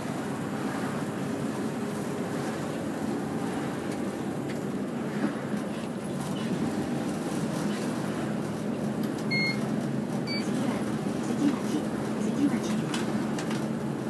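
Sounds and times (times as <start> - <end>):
bus engine and road rumble: 0.0 - 14.0
short high beeps: 9.3 - 9.6.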